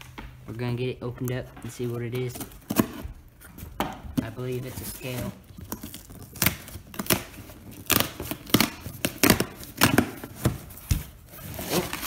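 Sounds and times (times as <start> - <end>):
packing tape ripping off cardboard: 2.2 - 3.5, 4.4 - 12.0.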